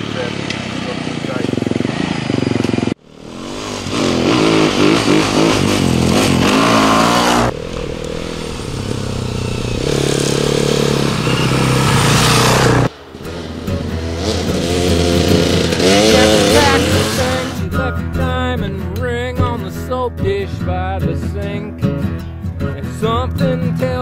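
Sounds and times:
dirt bike engines revving: 0.0s - 19.0s.

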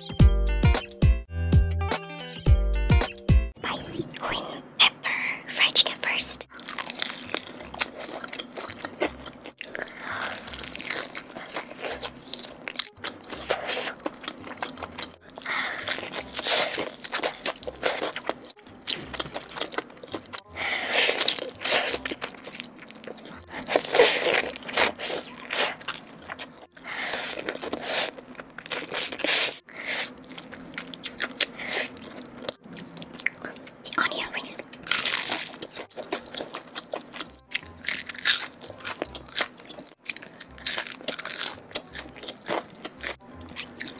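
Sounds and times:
chewing: 6.5s - 43.9s
fried chicken crunching: 6.5s - 43.9s.

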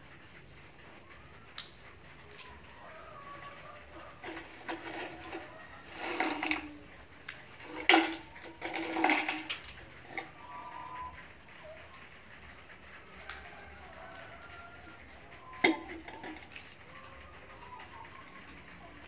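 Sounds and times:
toy pots and utensils clattering: 3.9s - 10.8s, 15.6s - 16.9s
faint bird chirps: 10.0s - 15.7s.

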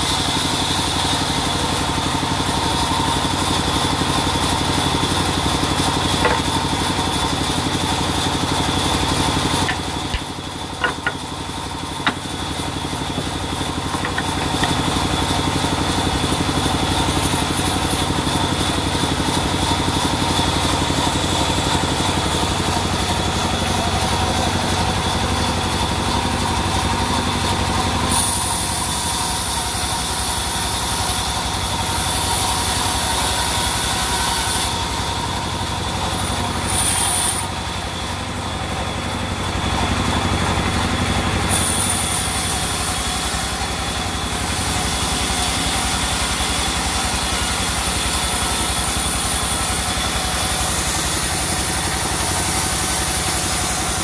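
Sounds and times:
band saw cutting through log: 0.0s - 54.0s
sharp knocks: 6.2s - 6.7s, 9.6s - 15.0s.

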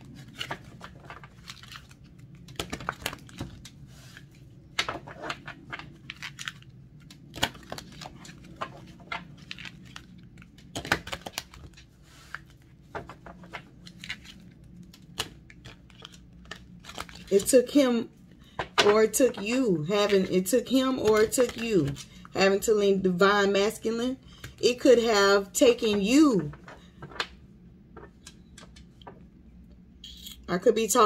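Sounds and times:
cards being shuffled: 0.0s - 17.8s, 18.6s - 22.3s, 25.8s - 29.2s.

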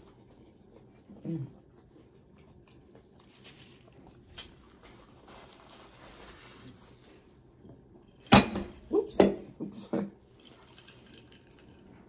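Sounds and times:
paper napkin rustling: 3.3s - 7.3s.

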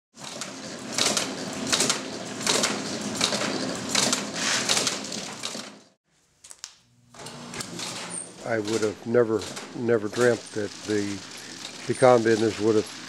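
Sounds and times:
electric motor humming: 7.1s - 13.0s.

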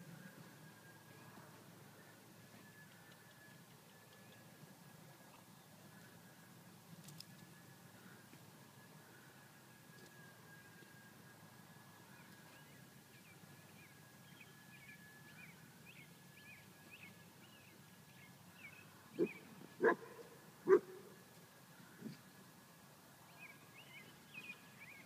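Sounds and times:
dog barking: 19.2s - 21.0s.

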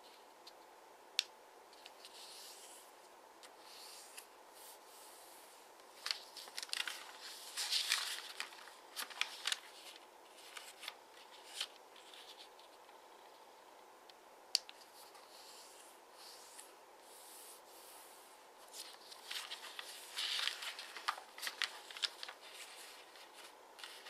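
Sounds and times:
paper rustling and crinkling: 5.8s - 13.0s, 18.6s - 24.0s.

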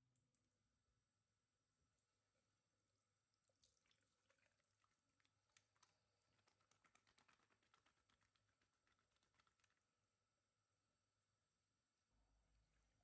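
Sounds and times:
tap water dripping into sink: 3.3s - 9.7s.

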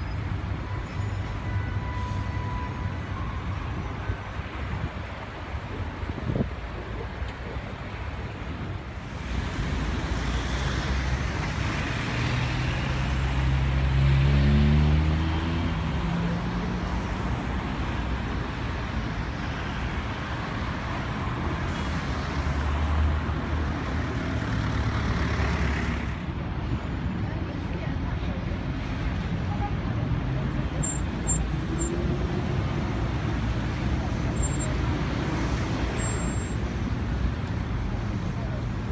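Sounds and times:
passing cars: 0.0s - 38.9s
vehicle pulling away: 10.3s - 16.8s.

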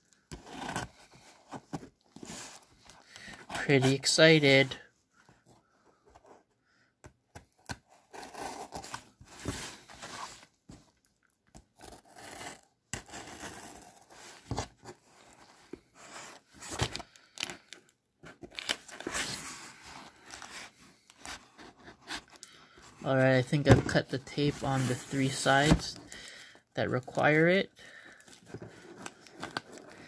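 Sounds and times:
cardboard scraping and rustling: 7.9s - 10.5s, 23.0s - 26.0s.

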